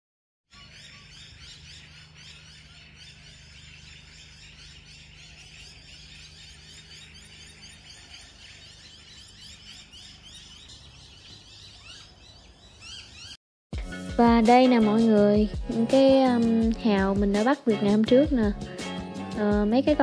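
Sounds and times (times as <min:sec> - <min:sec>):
birds chirping and calling: 0:00.5 - 0:13.4, 0:14.5 - 0:20.0
steady low hum: 0:00.6 - 0:11.2.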